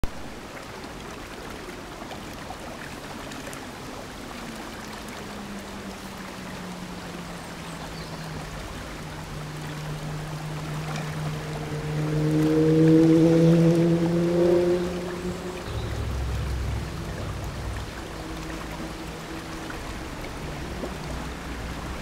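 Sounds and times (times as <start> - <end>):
stream water rushing: 0.0 - 22.0
low sliding tone: 10.4 - 21.7.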